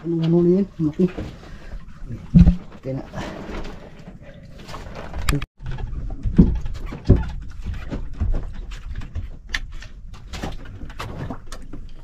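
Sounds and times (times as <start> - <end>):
loud thumps: 2.3 - 2.7
knocks and clicks on wooden boat: 5.2 - 12.0.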